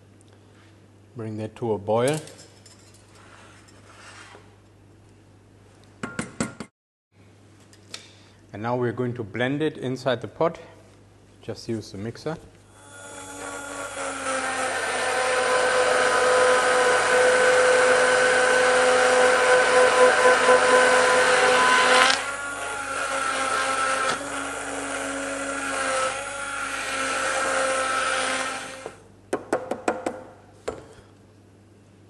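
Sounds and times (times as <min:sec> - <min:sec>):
stick blender motor whining: 0:12.7 - 0:29.0.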